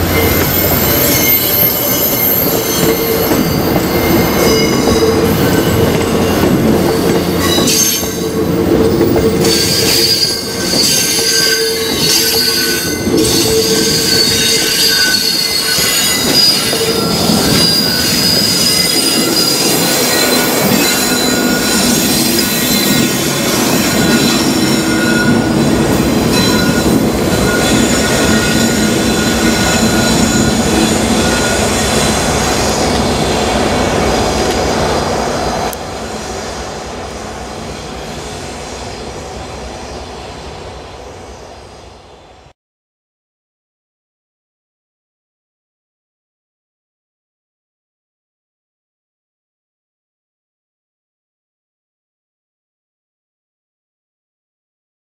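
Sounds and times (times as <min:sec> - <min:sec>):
train wheels squealing: 0:00.0 - 0:33.4
train wheels rumbling on track: 0:00.0 - 0:42.5.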